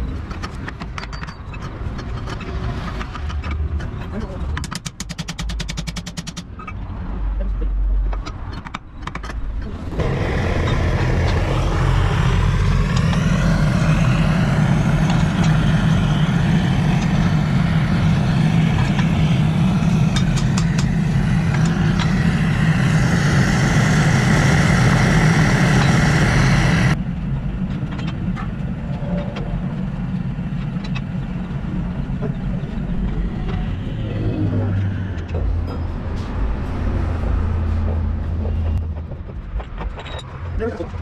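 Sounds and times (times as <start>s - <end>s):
gas burner roaring: 9.6s - 39.0s.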